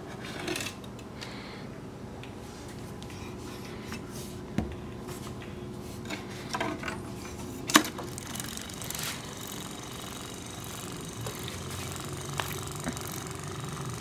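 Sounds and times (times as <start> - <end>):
small toy motor humming: 7.9 - 14.0.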